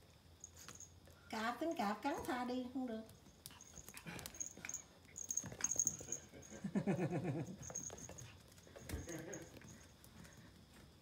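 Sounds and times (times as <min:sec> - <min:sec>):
ball and paws tapping on floor: 0:03.1 - 0:06.3, 0:07.6 - 0:11.0.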